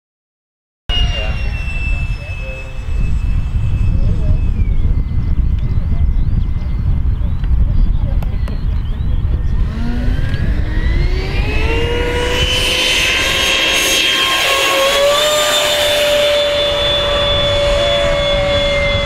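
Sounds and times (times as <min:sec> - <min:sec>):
model jet ducted fan whining: 0:00.9 - 0:19.0.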